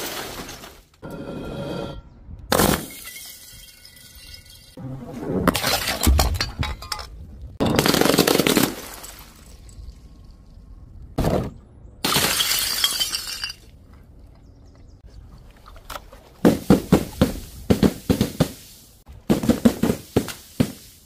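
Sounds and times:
glass shattering on paving stones: 0:00.0 - 0:00.9, 0:02.5 - 0:04.8, 0:05.6 - 0:10.6, 0:12.0 - 0:13.7
objects tumbling and thudding: 0:00.0 - 0:01.3, 0:05.2 - 0:09.7, 0:11.1 - 0:13.6, 0:15.9 - 0:21.0.

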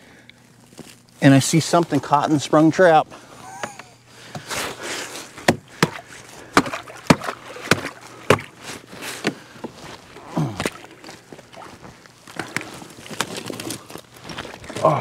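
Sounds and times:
broken ice and water sloshing: 0:05.6 - 0:15.0
ice being chopped: 0:06.6 - 0:08.6.

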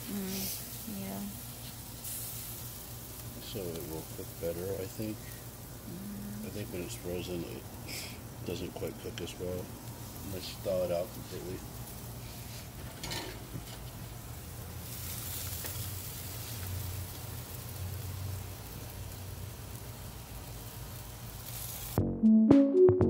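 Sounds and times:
steaks sizzling on a grill: 0:00.0 - 0:22.0
electronic music with a beat: 0:22.0 - 0:23.0.

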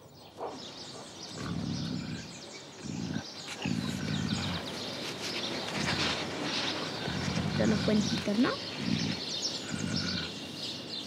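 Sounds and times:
birds chirping: 0:00.0 - 0:11.0
puma rumbling: 0:00.4 - 0:10.9.

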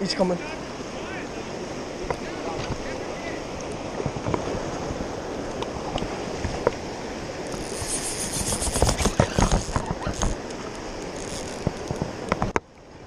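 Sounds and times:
rushing river water: 0:00.0 - 0:13.0
wind on microphone: 0:03.6 - 0:12.6
fishing reel buzzing: 0:07.5 - 0:12.0.

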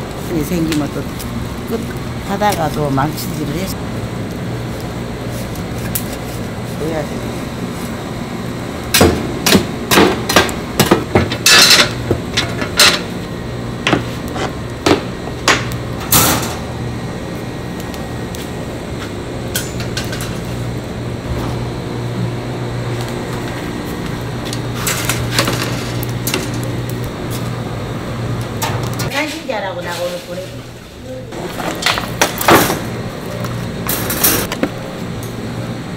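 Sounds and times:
steady low hum: 0:00.0 - 0:35.9
shovel clanking and scraping charcoal: 0:09.9 - 0:13.1, 0:24.5 - 0:27.5, 0:28.6 - 0:30.6
metal grill racks clattering: 0:10.0 - 0:13.1, 0:24.7 - 0:26.8.

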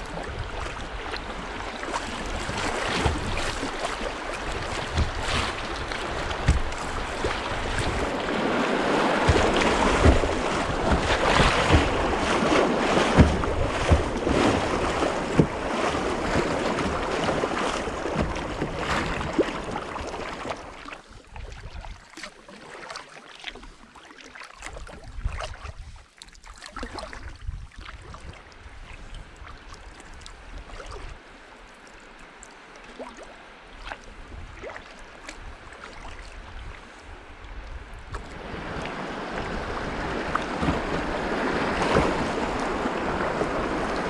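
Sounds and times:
river rapid rushing and splashing: 0:00.0 - 0:20.7, 0:38.4 - 0:44.0
kayak paddle splashes: 0:00.0 - 0:44.0.

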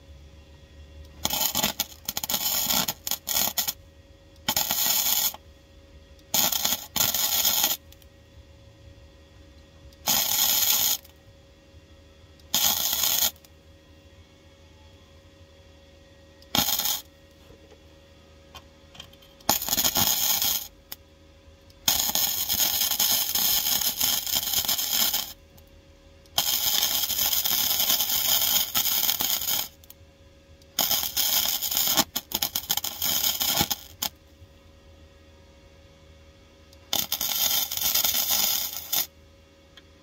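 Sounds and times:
welder arc crackling and hissing: 0:00.9 - 0:05.6, 0:06.2 - 0:08.1, 0:09.4 - 0:11.3, 0:12.2 - 0:13.7, 0:16.4 - 0:17.8, 0:18.5 - 0:34.4, 0:36.6 - 0:39.2.

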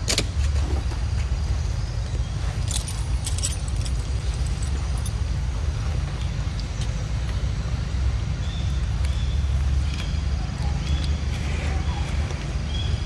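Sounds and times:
steady low rumble: 0:00.0 - 0:13.0
jingling rattle: 0:02.4 - 0:05.4.

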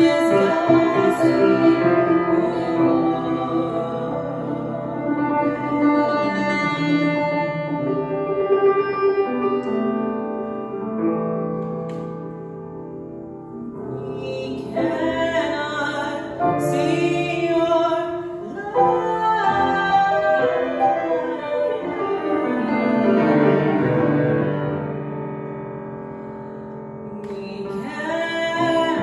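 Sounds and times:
woman singing: 0:00.0 - 0:08.0, 0:13.6 - 0:24.5, 0:27.1 - 0:29.0
grand piano notes: 0:00.0 - 0:29.0.

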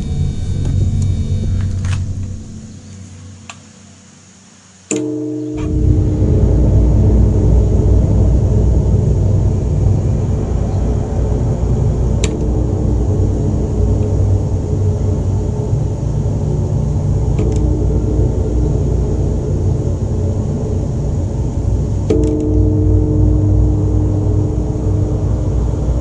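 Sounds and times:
deep rumbling drone: 0:00.0 - 0:03.9, 0:05.0 - 0:26.0
bell struck and ringing: 0:04.9 - 0:07.9, 0:22.1 - 0:26.0.

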